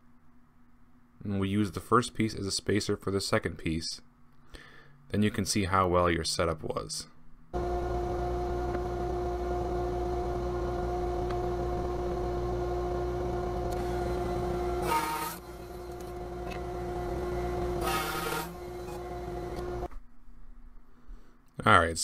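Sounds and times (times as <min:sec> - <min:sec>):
router bit cutting wood: 0:07.6 - 0:19.9
router high whine: 0:07.6 - 0:19.9.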